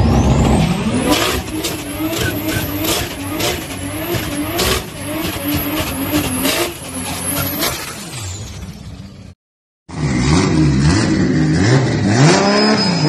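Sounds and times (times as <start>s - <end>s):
car engine revving: 0.0s - 9.2s, 9.9s - 13.0s
tyres squealing: 1.1s - 8.1s.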